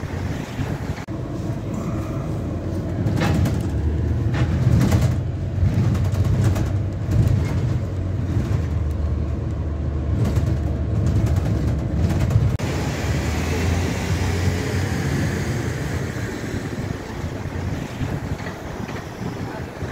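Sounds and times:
bus rumbling from inside: 0.0s - 19.9s
rattles: 2.8s - 9.0s, 10.1s - 12.6s.

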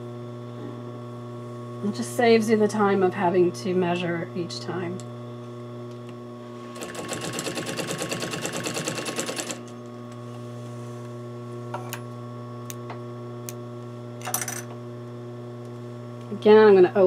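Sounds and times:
electric hum: 0.0s - 17.0s
sewing machine stitching: 6.7s - 9.7s.

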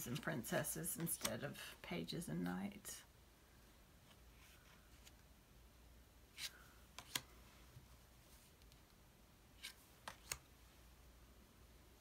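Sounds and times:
cards clicking and sliding: 6.3s - 7.4s, 9.6s - 10.5s.

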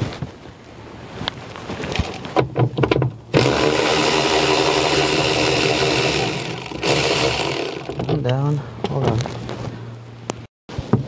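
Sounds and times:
cordless power tool motor: 1.9s - 2.2s, 3.3s - 8.2s.

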